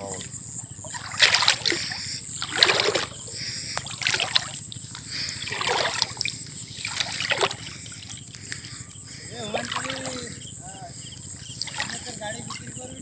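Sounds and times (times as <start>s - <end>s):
water splashing and dripping: 0.0s - 10.4s, 11.3s - 13.0s.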